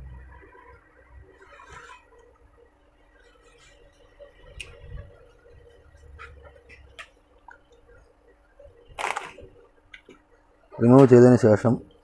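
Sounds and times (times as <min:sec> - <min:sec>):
plastic parts clicking and scratching: 0:09.0 - 0:09.4.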